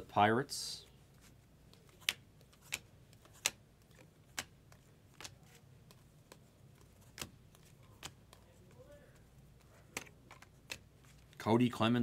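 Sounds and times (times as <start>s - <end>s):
cards flipped with sharp clicks: 1.7s - 8.5s, 9.5s - 11.4s.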